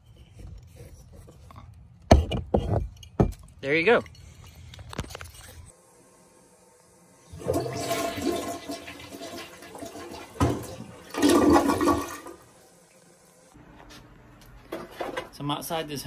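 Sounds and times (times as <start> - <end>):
toilet flushing: 7.1 - 13.5.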